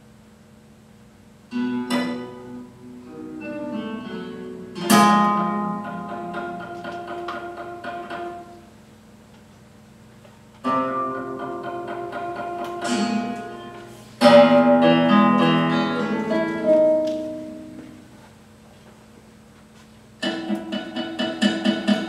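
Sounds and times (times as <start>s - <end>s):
guitar quartet playing chords: 1.5s - 8.7s, 10.6s - 18.2s.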